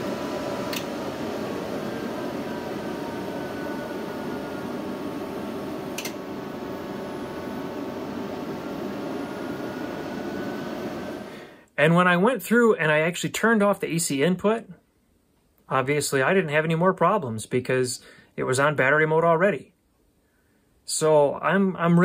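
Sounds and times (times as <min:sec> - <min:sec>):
inverter fan noise: 0:00.0 - 0:14.6
faint electrical whine: 0:00.0 - 0:22.0
inverter switch click: 0:00.7 - 0:00.9, 0:05.9 - 0:06.2.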